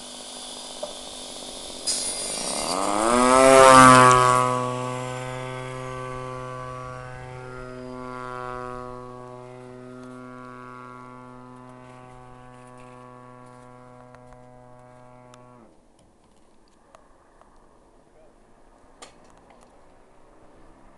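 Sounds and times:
model plane engine propeller drone: 0.0s - 15.8s.

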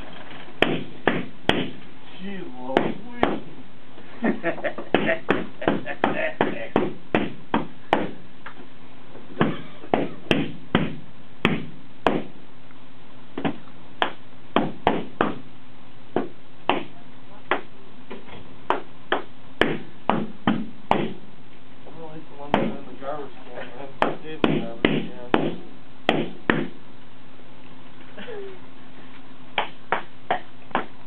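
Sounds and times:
balloons popping: 4.8s - 8.2s, 9.4s - 12.4s.

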